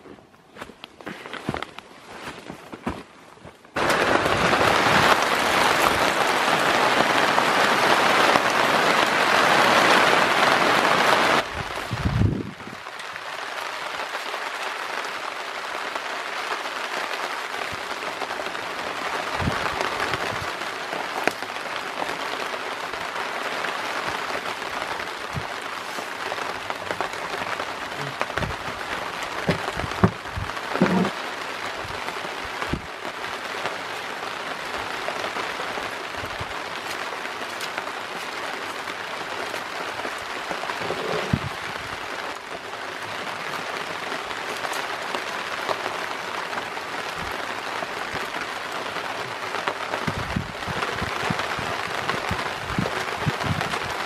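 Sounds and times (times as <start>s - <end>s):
rain on a tarp: 0.0s - 54.0s
rain pattering on canopy: 0.0s - 54.0s
knocks: 29.5s - 30.2s.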